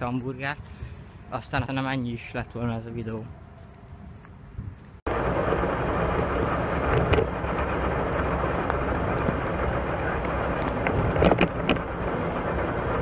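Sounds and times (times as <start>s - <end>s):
vehicle rumble in motion: 0.0s - 13.0s
faint engine hum: 3.0s - 13.0s.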